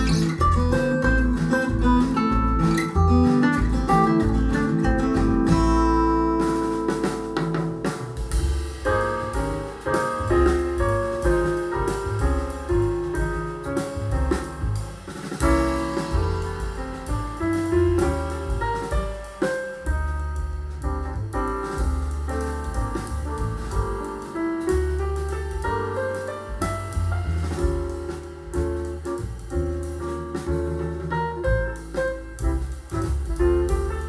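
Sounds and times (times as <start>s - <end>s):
folk music with acoustic guitar: 0.0s - 8.3s
jazz music with piano: 0.0s - 34.0s.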